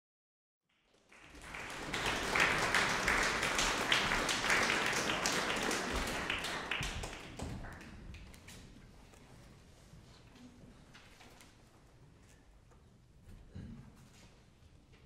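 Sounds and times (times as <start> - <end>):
audience applauding: 0.7 - 8.5.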